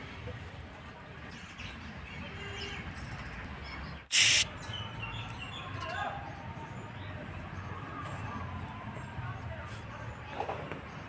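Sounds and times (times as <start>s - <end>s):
short loud hiss-like burst: 4.1s - 4.5s.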